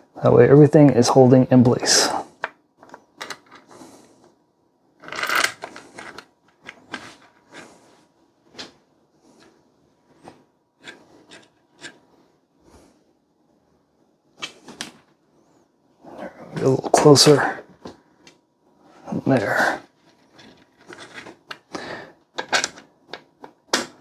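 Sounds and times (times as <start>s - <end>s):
handling rustle: 19.9s - 21.5s.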